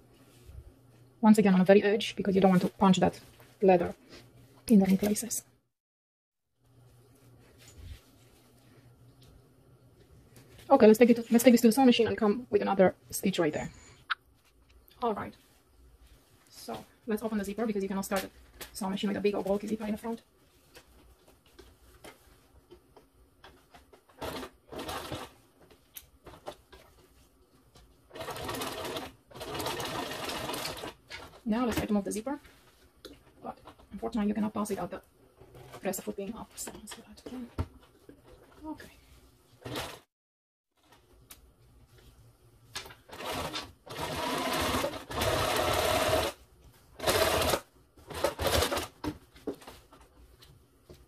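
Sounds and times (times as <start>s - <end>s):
sewing machine stitching: 24.1s - 25.4s, 28.1s - 31.4s, 39.6s - 40.1s, 43.1s - 46.4s, 47.0s - 49.0s.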